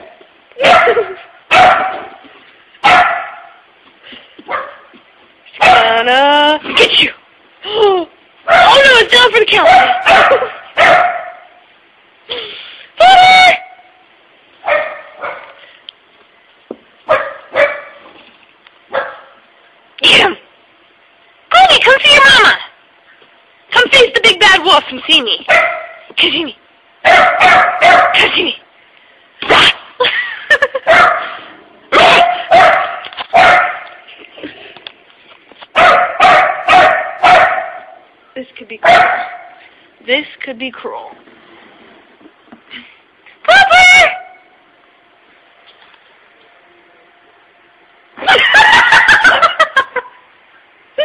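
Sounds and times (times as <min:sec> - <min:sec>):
puppy barking: 0:00.6 - 0:02.2, 0:02.8 - 0:03.6, 0:04.5 - 0:04.9, 0:05.6 - 0:06.0, 0:08.5 - 0:08.9, 0:09.6 - 0:11.6, 0:14.6 - 0:15.6, 0:17.1 - 0:18.0, 0:18.9 - 0:19.4, 0:25.5 - 0:26.1, 0:27.0 - 0:28.3, 0:30.8 - 0:34.0, 0:35.7 - 0:38.0, 0:38.8 - 0:39.6.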